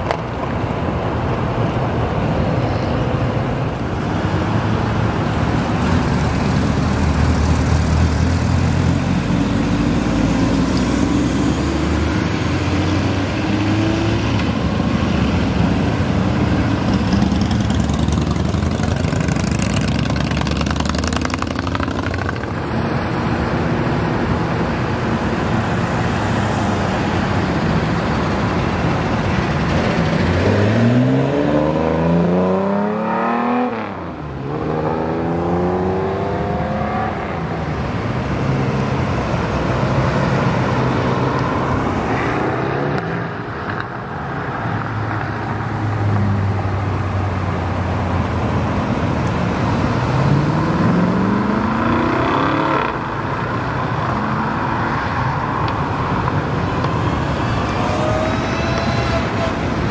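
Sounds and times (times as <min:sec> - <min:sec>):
sports cars accelerating past: 0:30.1 - 0:37.8, 0:49.6 - 0:53.5.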